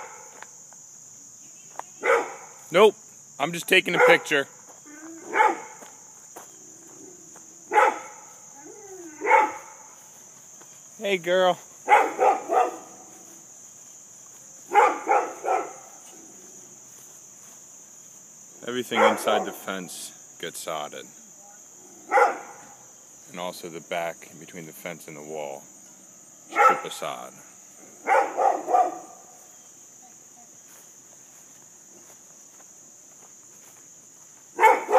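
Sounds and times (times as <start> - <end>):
insects buzzing: 0.0 - 34.9
dog barking: 2.0 - 2.6, 3.9 - 4.4, 5.2 - 5.8, 7.7 - 8.4, 9.0 - 9.9, 11.8 - 13.1, 14.7 - 16.0, 18.9 - 19.7, 22.0 - 22.8, 26.5 - 27.0, 28.0 - 29.3, 34.6 - 34.9.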